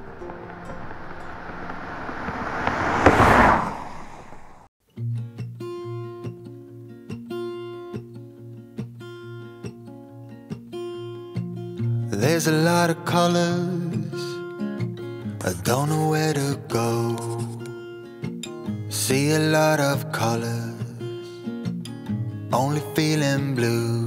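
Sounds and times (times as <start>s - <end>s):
acoustic guitar music: 0.0s - 1.5s, 4.9s - 24.0s
truck driving past: 0.0s - 4.7s.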